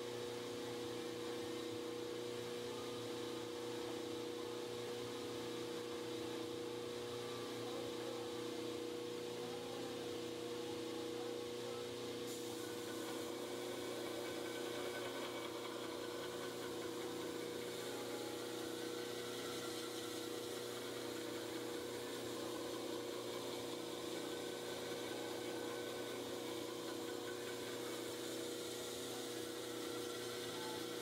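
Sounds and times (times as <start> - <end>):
belt grinder motor humming: 12.3 - 31.0.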